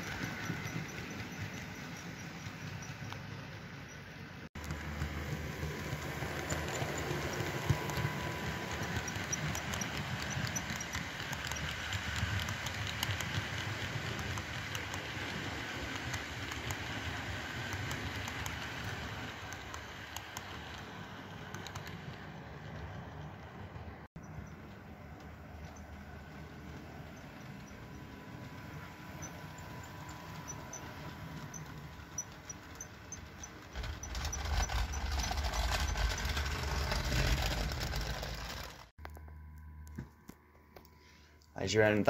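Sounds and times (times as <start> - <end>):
model train rumbling with wheel clicks: 0.0 - 38.9.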